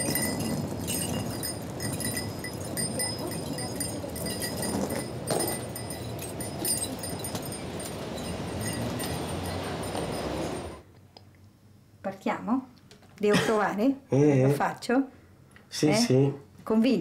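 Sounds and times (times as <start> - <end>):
trolley and suitcase rattling: 0.0 - 10.8
street noise: 0.0 - 10.9.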